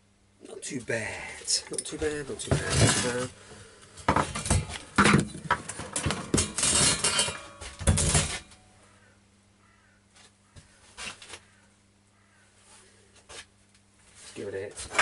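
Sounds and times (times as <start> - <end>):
metal objects clattering: 1.7 - 3.3, 4.1 - 8.6, 14.8 - 15.0.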